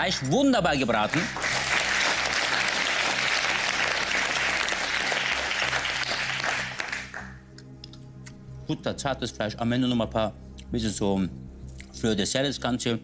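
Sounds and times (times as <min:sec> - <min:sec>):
studio audience applauding: 0:00.0 - 0:07.4.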